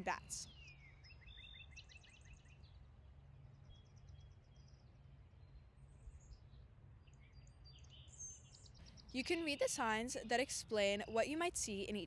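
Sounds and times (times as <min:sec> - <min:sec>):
songbird trills: 0:00.0 - 0:02.8.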